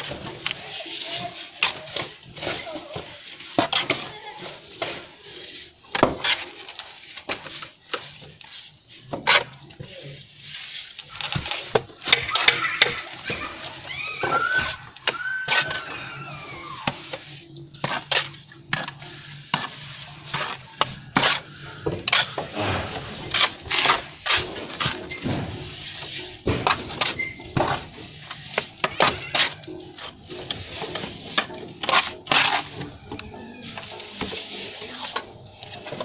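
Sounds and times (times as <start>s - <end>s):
trowels scraping and tapping mortar: 0.0s - 36.0s.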